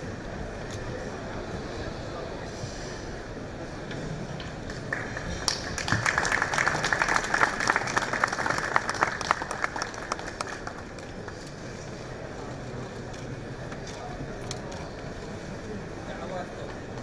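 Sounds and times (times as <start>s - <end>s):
audience applauding: 4.6s - 11.5s.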